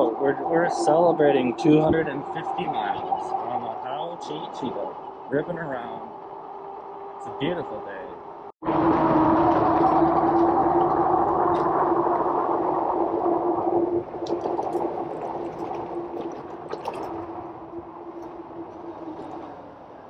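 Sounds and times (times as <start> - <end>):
wind: 0.0 - 20.0
electric motor whine: 8.6 - 14.2.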